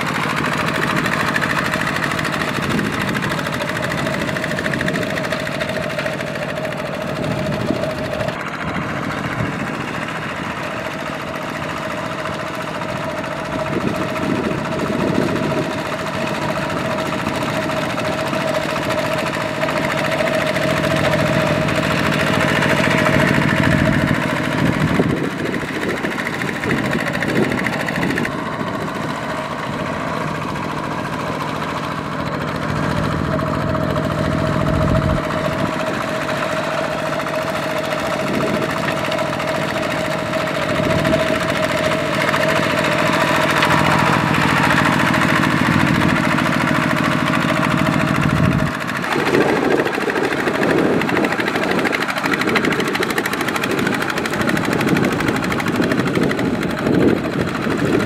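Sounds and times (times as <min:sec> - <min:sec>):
diesel tractor engine running: 0:00.0 - 0:58.0
churning through water: 0:35.2 - 0:58.0.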